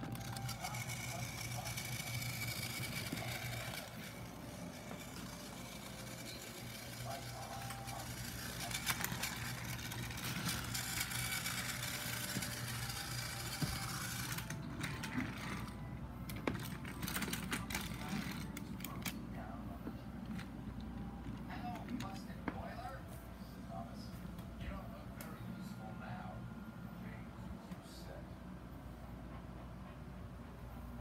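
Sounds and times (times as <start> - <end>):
toy train motor whirring: 0.0 - 19.2.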